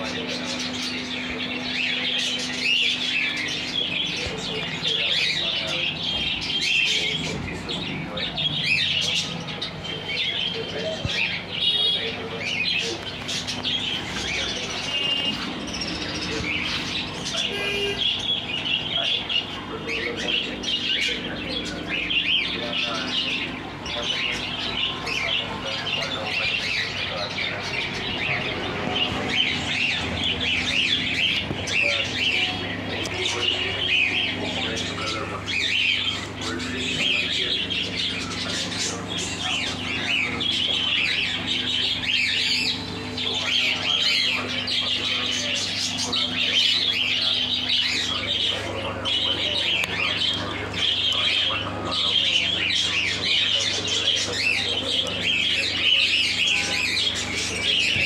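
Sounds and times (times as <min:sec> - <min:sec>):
small birds chirping and squawking: 0:00.0 - 0:58.0
steady low hum: 0:00.0 - 0:58.0.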